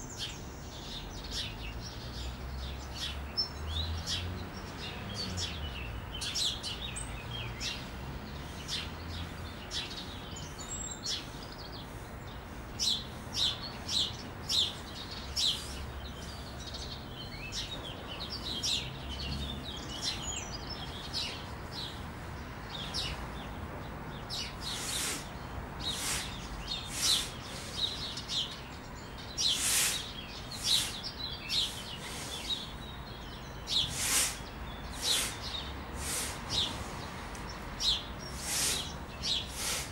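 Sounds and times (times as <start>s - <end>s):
small birds chirping: 0.0s - 39.9s
sharp forceful exhales: 24.6s - 28.0s, 29.4s - 32.7s, 33.8s - 37.0s, 38.3s - 39.9s.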